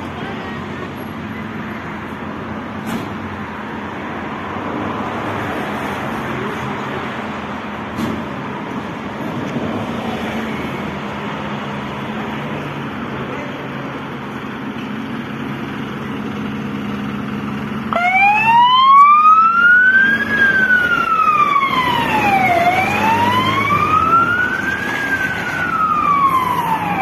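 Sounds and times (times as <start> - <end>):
fire engine running: 0.0 - 27.0
siren wailing: 17.9 - 27.0.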